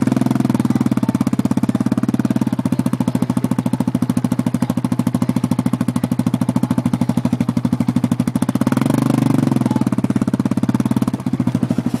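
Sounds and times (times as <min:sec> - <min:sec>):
engine chugging and revving: 0:00.0 - 0:12.0.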